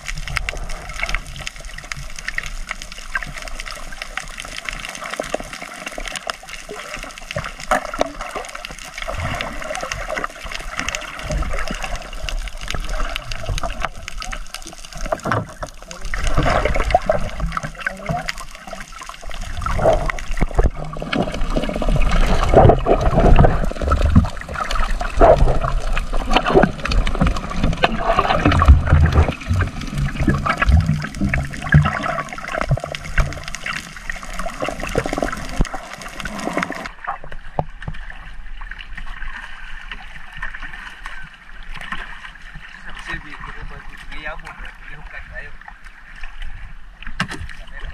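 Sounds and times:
underwater splashing and bubbling: 0.0 - 47.9
surface water sloshing: 19.5 - 37.0
underwater knocks: 19.6 - 33.8.

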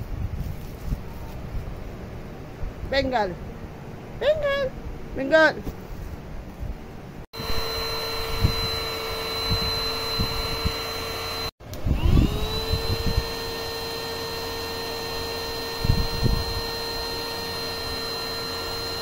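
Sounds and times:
cordless vacuum whine: 7.4 - 19.0.

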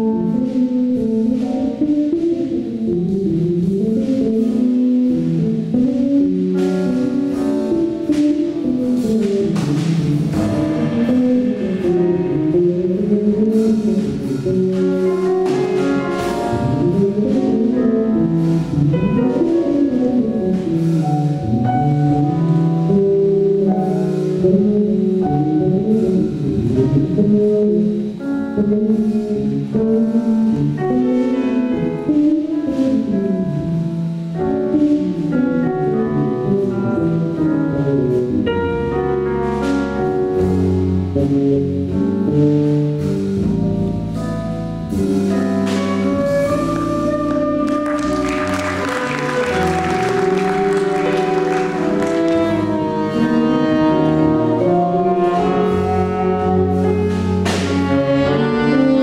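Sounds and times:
electric bass: 0.0 - 59.0
drums playing: 6.4 - 20.0, 45.0 - 52.8
cymbal strokes: 10.0 - 14.5.

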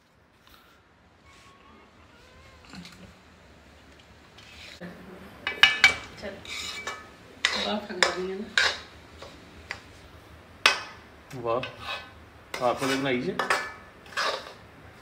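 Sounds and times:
metal spoon scraping metal pan: 5.6 - 8.9, 11.6 - 14.6.

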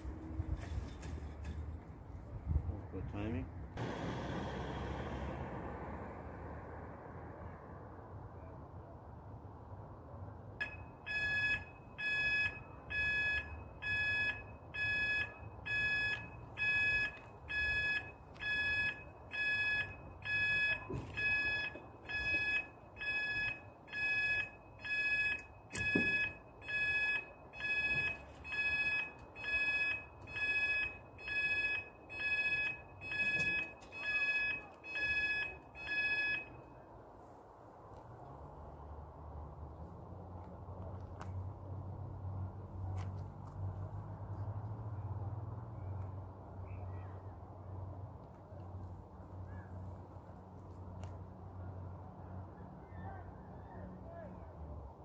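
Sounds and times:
level crossing alarm beeping: 10.6 - 36.8.

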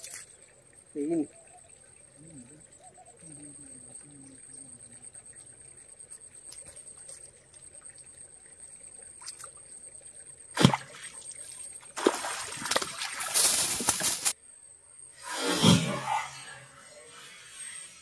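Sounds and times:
water splashing: 0.0 - 1.4, 6.2 - 14.4
high insect drone: 0.0 - 18.0.

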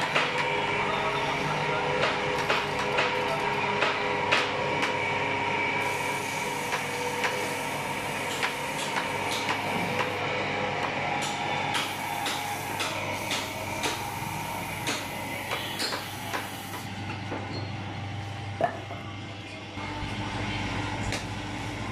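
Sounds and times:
tool clicking and knocking on wood: 8.3 - 10.2, 14.8 - 16.9.

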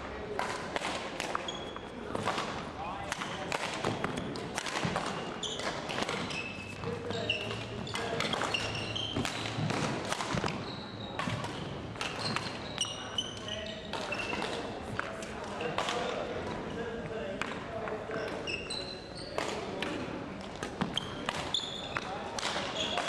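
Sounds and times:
shoes squeaking on wooden floor: 4.9 - 9.7, 10.3 - 14.5, 20.8 - 22.1.

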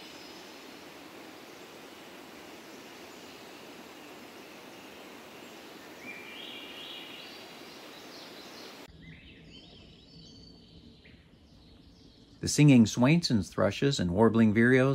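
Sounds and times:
steady rushing noise: 0.0 - 8.9.

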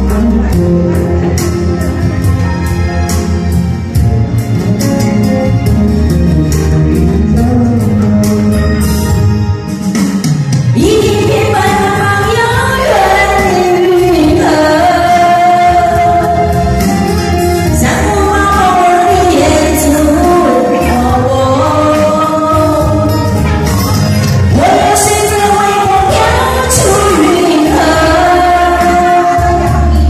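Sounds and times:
karaoke backing track: 0.0 - 30.0
person singing into a microphone: 10.8 - 23.8, 24.5 - 30.0.

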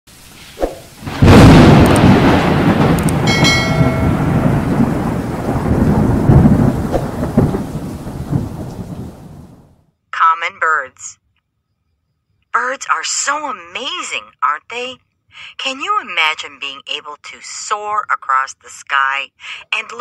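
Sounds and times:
thunder crack and rumble: 1.0 - 9.8
brief ringing tone: 3.3 - 4.4.

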